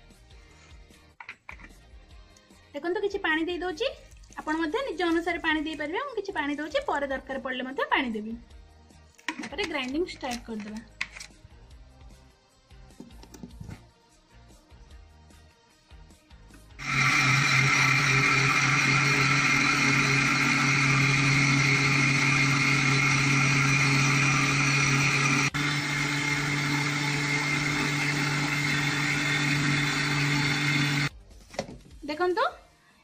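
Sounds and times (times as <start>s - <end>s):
mixer grinder running: 16.8s - 31.1s.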